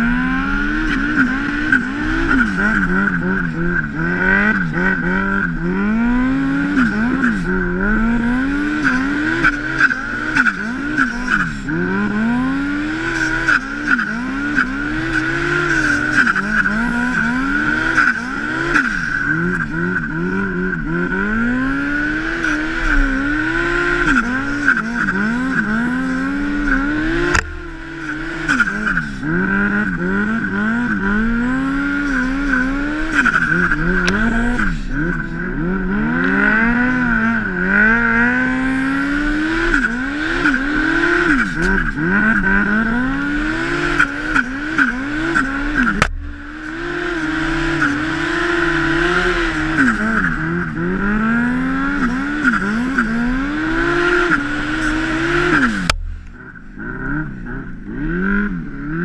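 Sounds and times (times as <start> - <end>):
snowmobile engine revving: 0.0 - 59.0
steady high whine: 44.4 - 49.1, 55.3 - 57.1.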